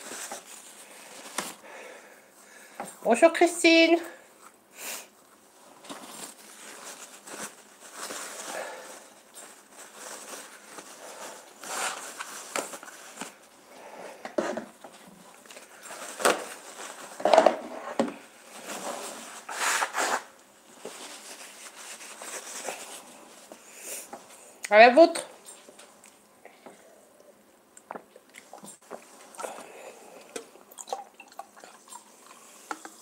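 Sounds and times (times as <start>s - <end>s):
paper towel rustling: 0.0s - 2.7s, 5.2s - 13.6s, 14.4s - 26.0s.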